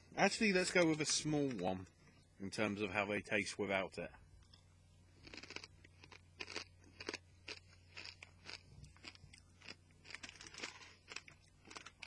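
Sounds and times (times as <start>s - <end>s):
crisp crunches of chewing: 5.2s - 12.0s.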